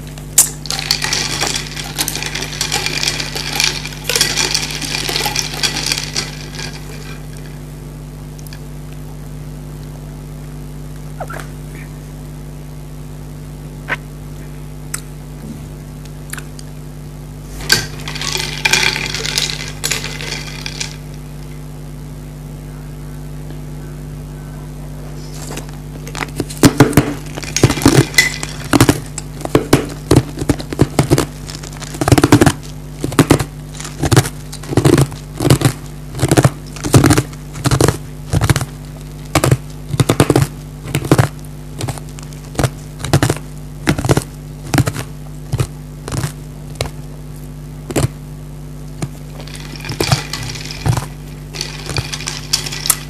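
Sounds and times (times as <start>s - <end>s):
low electrical hum: 0.0s - 53.0s
ice cubes crunched by teeth: 0.4s - 7.3s, 17.6s - 21.0s, 49.1s - 53.0s.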